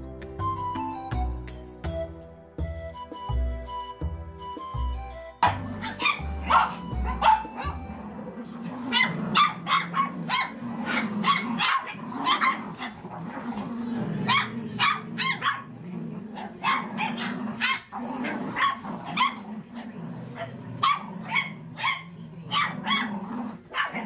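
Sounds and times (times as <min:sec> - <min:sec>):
background music: 0:00.0 - 0:15.6
dogs barking and yapping: 0:05.4 - 0:24.0.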